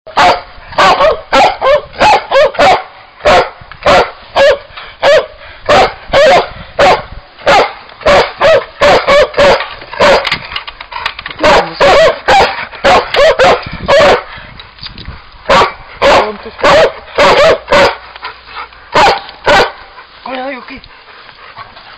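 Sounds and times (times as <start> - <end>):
dog barking: 0.1 - 10.3, 11.4 - 14.3, 15.5 - 18.0, 18.9 - 19.8.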